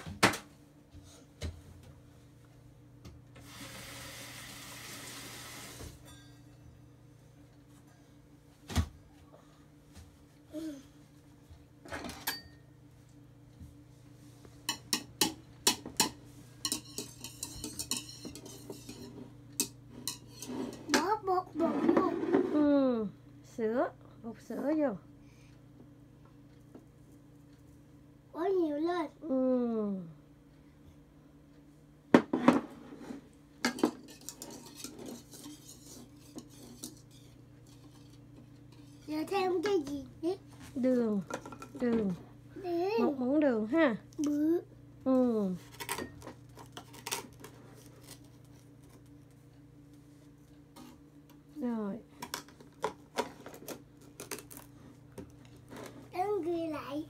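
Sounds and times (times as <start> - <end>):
whisk clinking against bowl: 14.7 - 20.5
whisk rattling in bowl: 16.0 - 20.5, 34.0 - 38.2.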